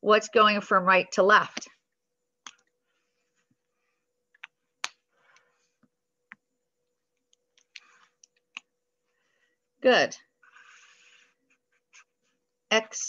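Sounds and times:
faint steady hum: 0.0s - 13.0s
faint clicks and taps: 4.3s - 8.8s.

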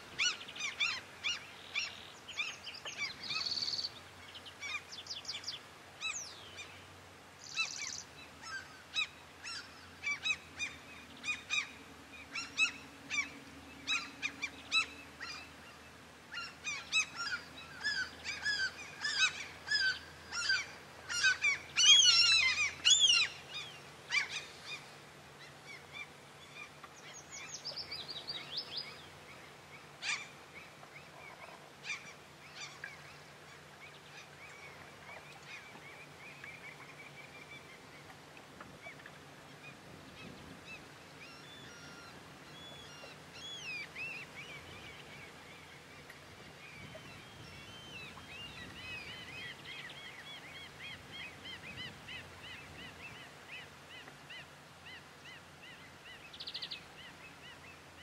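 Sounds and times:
birds calling: 0.0s - 6.8s, 7.4s - 38.1s.

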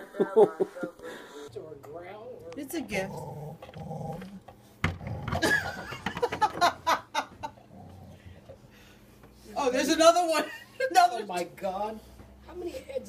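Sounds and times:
people laughing: 0.0s - 1.3s, 5.4s - 7.7s.

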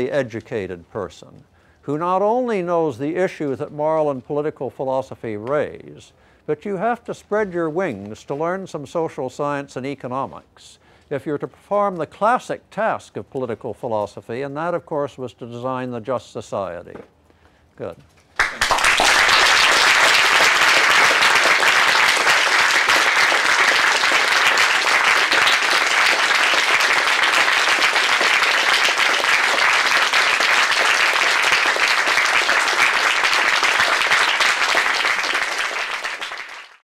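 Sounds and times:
audience applauding: 18.4s - 36.8s.

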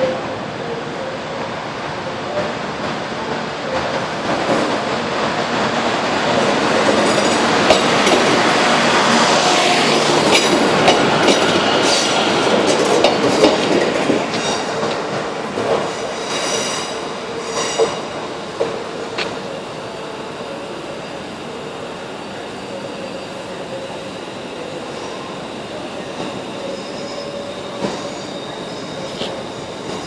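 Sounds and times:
train wheels clicking over rail joints: 6.3s - 8.5s, 10.0s - 16.6s
train wheels squealing: 15.8s - 18.2s, 19.4s - 30.0s.

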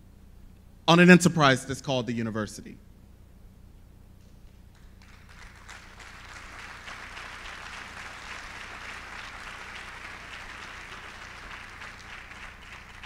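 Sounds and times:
audience applause: 4.8s - 13.0s.

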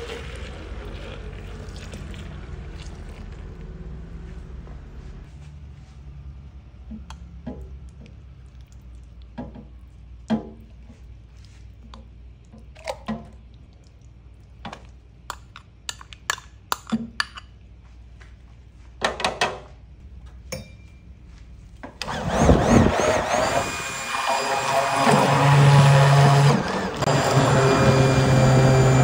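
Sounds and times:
stick blender running: 22.0s - 29.0s.

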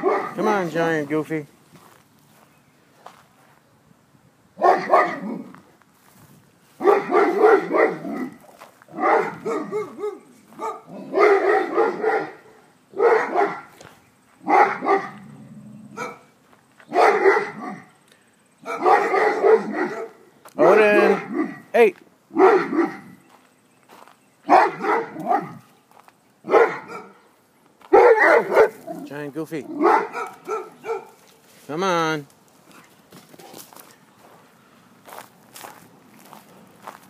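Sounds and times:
large dog barking: 0.0s - 0.7s, 4.6s - 5.6s, 6.8s - 13.8s, 14.4s - 16.3s, 16.9s - 18.0s, 18.6s - 23.2s, 24.5s - 25.7s, 26.4s - 27.3s, 27.9s - 31.2s.

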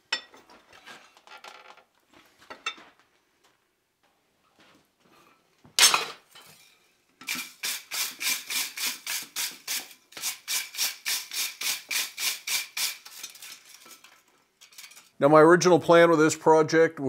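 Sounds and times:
metal clank on anvil: 5.8s - 6.2s
wire brush scrubbing hot iron: 7.2s - 15.0s.

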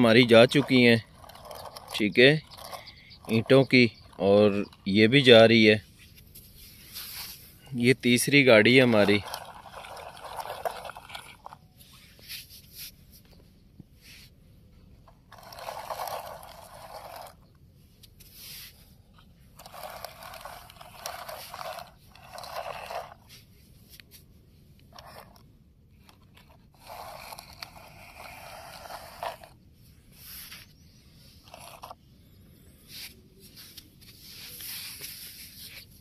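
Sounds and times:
plastic wheels crunching through sand: 0.0s - 5.8s, 6.6s - 12.6s, 15.2s - 17.4s, 19.5s - 23.5s, 26.0s - 32.0s, 32.9s - 36.0s.

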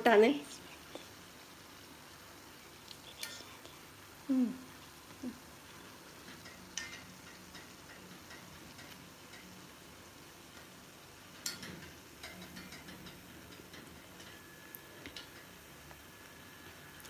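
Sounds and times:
fritters frying in hot oil: 0.0s - 17.0s
metal spoon clicking on pan: 6.2s - 9.6s, 11.4s - 14.4s.

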